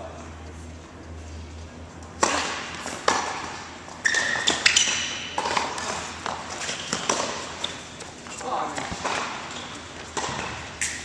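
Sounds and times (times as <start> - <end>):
tennis ball bouncing on court: 2.1 - 11.0
tennis ball struck by rackets: 2.2 - 7.6, 8.8 - 11.0.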